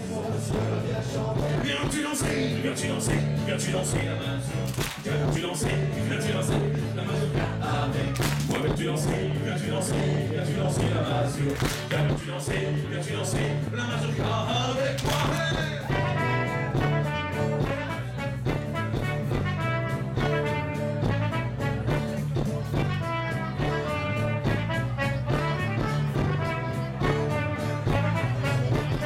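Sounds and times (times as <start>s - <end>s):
live band playing: 0.0s - 29.0s
flugelhorn melody: 15.9s - 22.2s, 22.8s - 29.0s.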